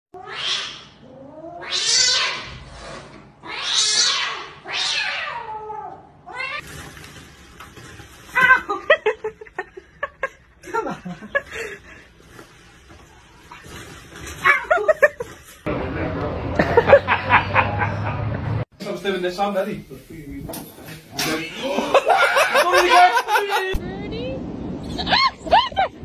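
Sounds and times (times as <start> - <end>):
cats yowling: 0.2 - 2.6, 3.4 - 6.6.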